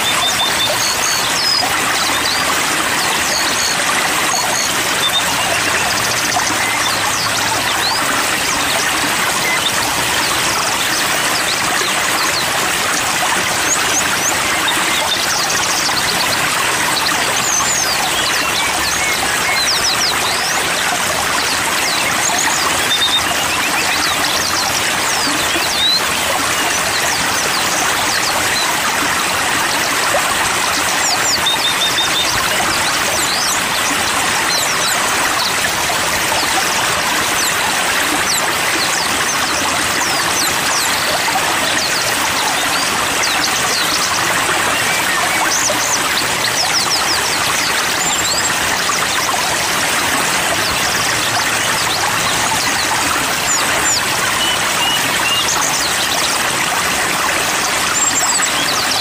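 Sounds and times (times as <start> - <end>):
small birds chirping: 0.0 - 59.0
stream flowing: 0.0 - 59.0.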